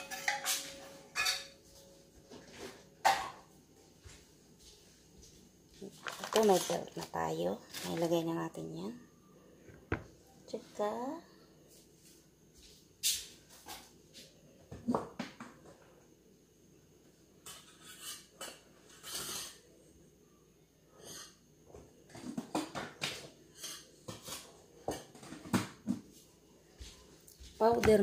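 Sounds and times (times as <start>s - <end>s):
dishes clinking and knocking: 0.0s - 3.6s, 9.7s - 10.2s, 17.4s - 19.7s, 21.0s - 26.1s.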